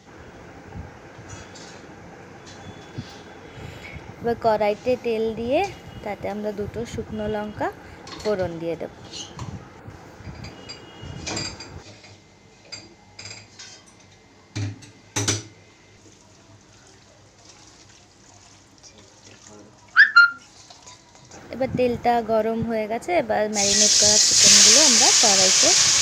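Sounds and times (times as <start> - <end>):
short high-pitched squeal: 20.0 - 20.5
oil hissing in pan: 23.5 - 26.0.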